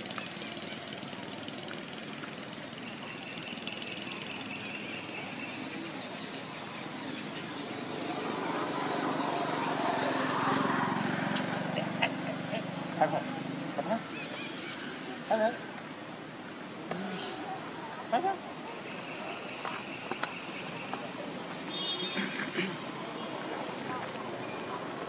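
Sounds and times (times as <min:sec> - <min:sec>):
distant engine drone: 0:00.0 - 0:17.6
outdoor background noise: 0:00.0 - 0:25.0.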